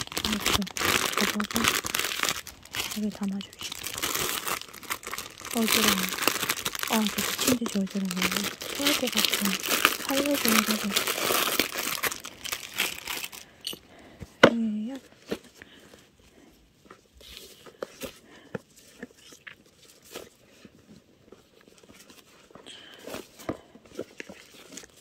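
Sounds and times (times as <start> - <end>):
hands handling a paperboard box: 16.8 - 25.0.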